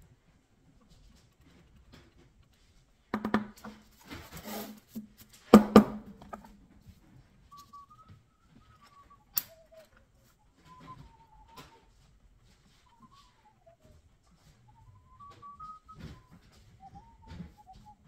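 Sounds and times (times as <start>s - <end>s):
faint thin whistle: 7.4s - 18.0s.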